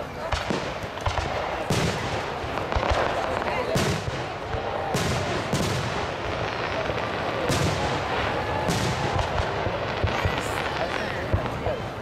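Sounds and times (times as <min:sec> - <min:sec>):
fireworks bursting: 0:00.0 - 0:12.0.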